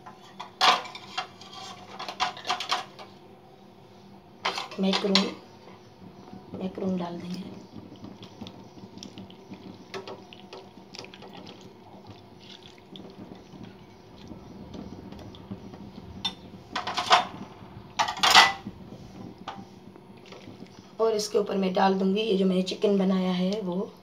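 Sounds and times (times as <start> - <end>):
small knocks and clatter: 0.0 - 3.2, 12.4 - 20.8
spatula scraping glass bowl: 0.1 - 2.1
wet sliding of pasta: 7.9 - 14.3.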